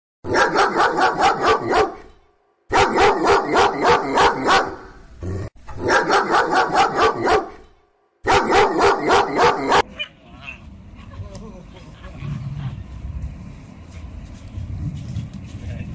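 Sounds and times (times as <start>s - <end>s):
dog barking: 0.3s - 2.1s, 2.7s - 5.0s, 5.8s - 10.2s.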